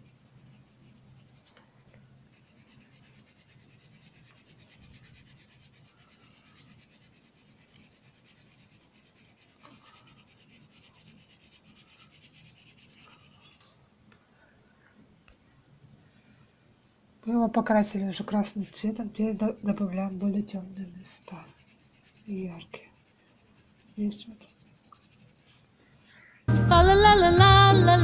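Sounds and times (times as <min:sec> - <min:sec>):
pencil shading on paper: 0:00.0 - 0:01.6, 0:02.3 - 0:13.6, 0:18.4 - 0:25.6.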